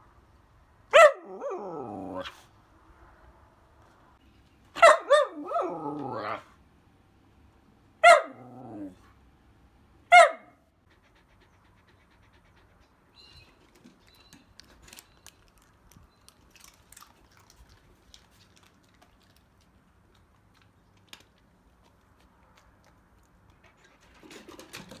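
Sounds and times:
dog bark: 0:00.9 - 0:01.6, 0:04.8 - 0:05.9, 0:08.0 - 0:08.6, 0:10.1 - 0:10.6.

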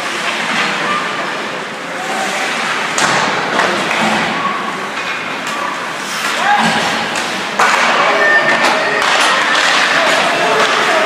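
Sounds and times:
sharp knocks in a rink: 0:02.9 - 0:11.0.

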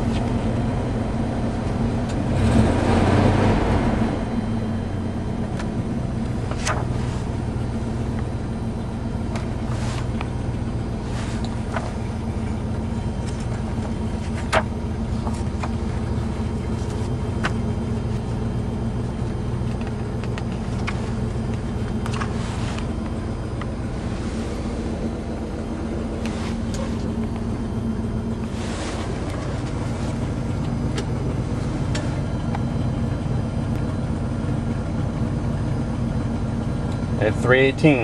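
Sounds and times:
engine idling smoothly: 0:00.0 - 0:38.0
soft paper rustles: 0:06.5 - 0:07.3, 0:11.0 - 0:12.2.

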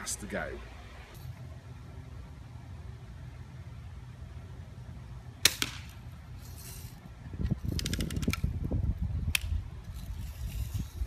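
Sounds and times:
bb gun firing crack: 0:05.4 - 0:06.0
sharp snap: 0:05.4 - 0:06.0, 0:09.3 - 0:09.6
wind rumble on microphone: 0:07.0 - 0:11.0.

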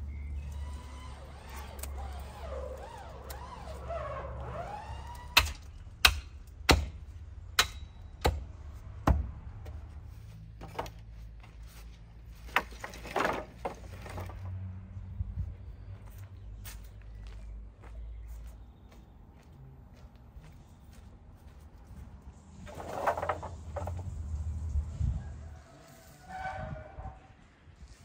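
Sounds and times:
wooden poles knocking: 0:22.7 - 0:24.1.

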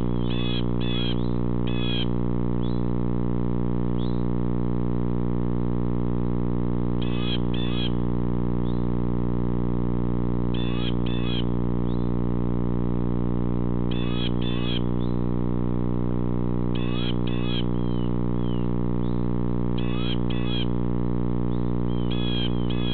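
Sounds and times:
electrical hum: 0:00.0 - 0:22.9.

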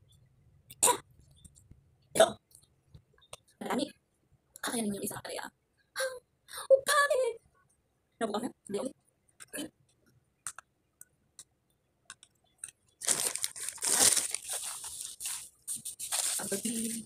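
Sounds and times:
soft crunchy clicks: 0:09.3 - 0:13.0
plastic snack bag crinkling: 0:12.9 - 0:17.0.

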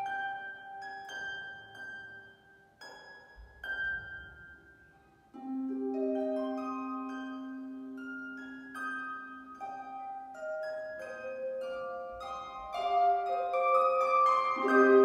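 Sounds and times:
harp plucked notes: 0:00.0 - 0:15.0.

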